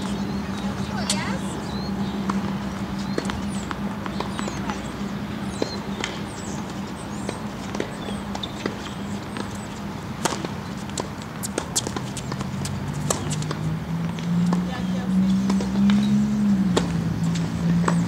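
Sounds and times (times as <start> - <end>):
birds chirping: 0.0 - 18.0
tennis ball bouncing on court: 2.2 - 18.0
racket hitting ball: 10.2 - 13.6.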